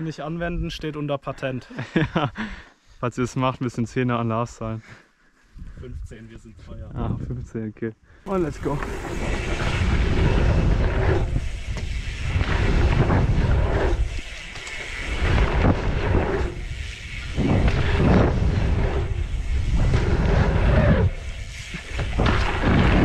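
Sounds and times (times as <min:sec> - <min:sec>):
wind on microphone: 0:05.6 - 0:07.5, 0:08.3 - 0:23.0
tyres rolling on dirt: 0:08.3 - 0:23.0.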